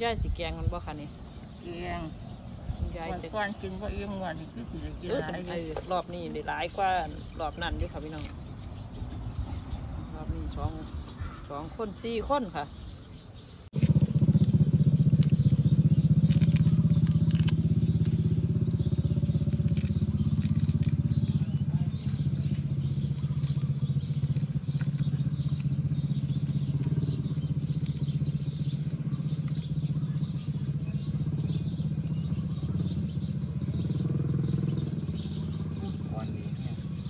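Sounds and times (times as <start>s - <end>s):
bamboo shoots snapping and tearing: 5.1s - 8.4s, 13.8s - 18.4s, 19.4s - 22.1s, 23.0s - 29.6s
engine droning: 13.6s - 37.0s.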